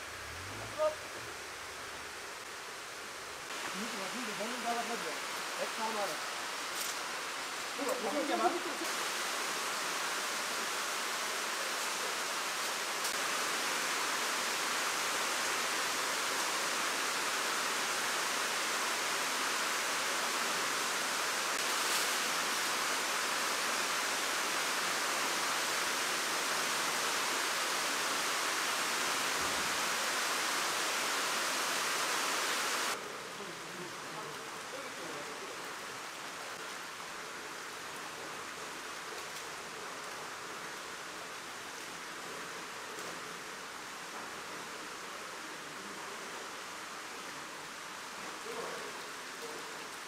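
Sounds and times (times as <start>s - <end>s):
rushing water hiss in tank: 0.0s - 33.0s.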